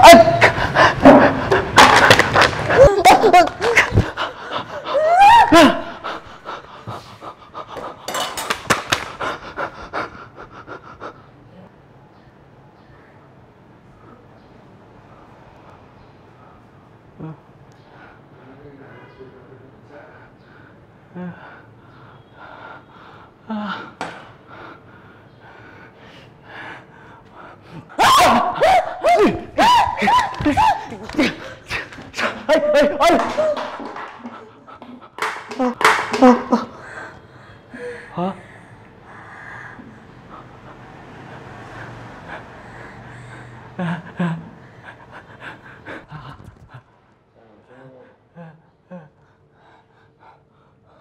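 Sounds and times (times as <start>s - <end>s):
short squealing cry: 0.0s - 0.6s
heavy fast panting: 0.0s - 2.9s, 3.5s - 5.0s, 5.7s - 11.4s, 34.1s - 47.0s
heavy breathing: 0.4s - 2.9s, 5.7s - 11.8s, 19.9s - 28.0s, 34.0s - 51.0s
shrieking screams: 4.8s - 6.0s, 28.0s - 30.9s.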